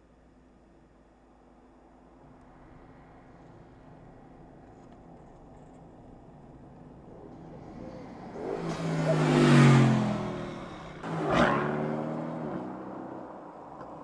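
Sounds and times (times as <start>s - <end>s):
sports car engine passing by: 7.3s - 13.6s.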